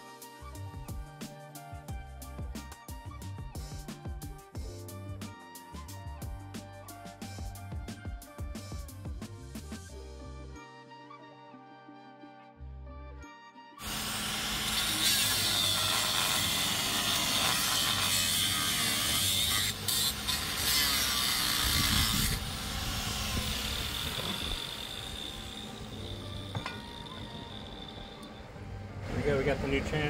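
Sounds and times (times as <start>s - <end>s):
background music: 0.0s - 30.0s
angle grinder cutting metal: 13.8s - 28.5s.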